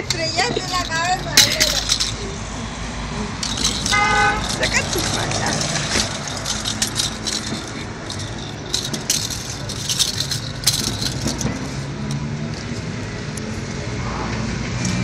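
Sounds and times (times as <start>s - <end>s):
ball toy with bell jingling: 0.0s - 2.4s, 3.4s - 11.8s
vehicle engine hum: 0.0s - 15.0s.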